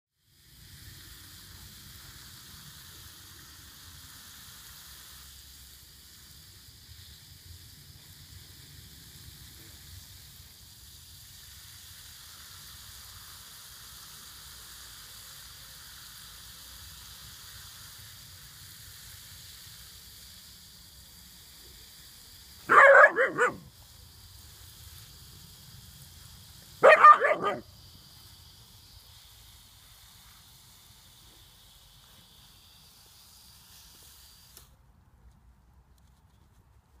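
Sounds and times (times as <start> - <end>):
hose water spraying on grass: 0.1 - 37.0
puppy barking: 22.7 - 23.6, 26.8 - 27.6.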